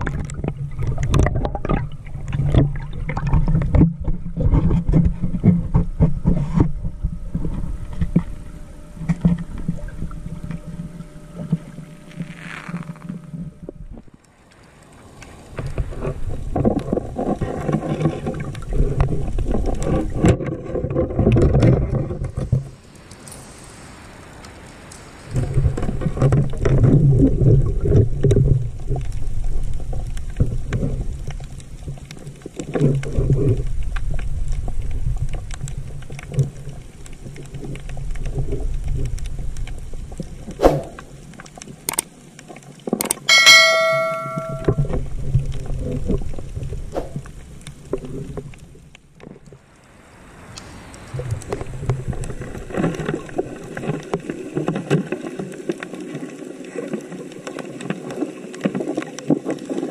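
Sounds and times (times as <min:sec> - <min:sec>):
underwater clicks and knocks: 0:00.0 - 0:08.4, 0:15.6 - 0:22.7
underwater air bubbles rumbling: 0:00.0 - 0:11.6, 0:13.5 - 0:22.7, 0:25.4 - 0:41.4
metallic clank ringing: 0:43.3 - 0:44.9.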